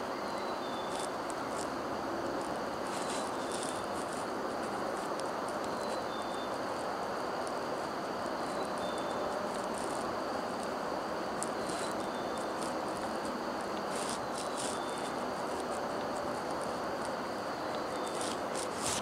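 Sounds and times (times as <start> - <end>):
constant outdoor hiss: 0.0 - 19.0.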